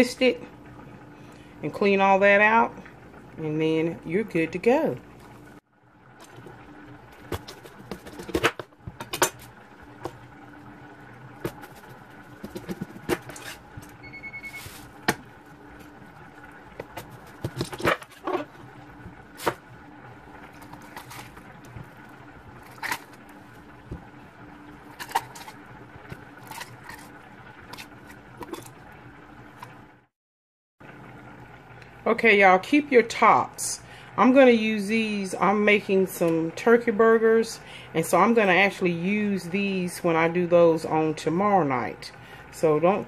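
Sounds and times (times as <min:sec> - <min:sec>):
background hum: 0:00.0 - 0:30.1, 0:30.8 - 0:43.0
short beep: 0:14.0 - 0:14.8
peppers scraping: 0:24.9 - 0:25.6.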